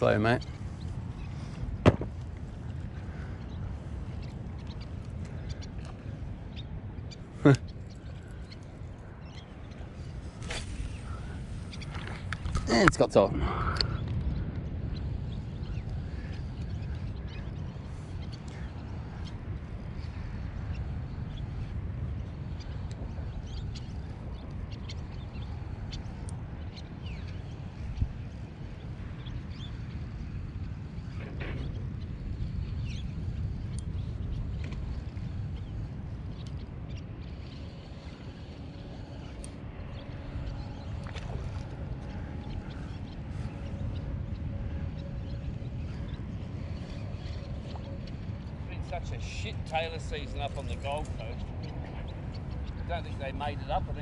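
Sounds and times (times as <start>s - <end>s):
steady low rumble: 0.0s - 54.0s
sharp knock: 1.8s - 2.1s.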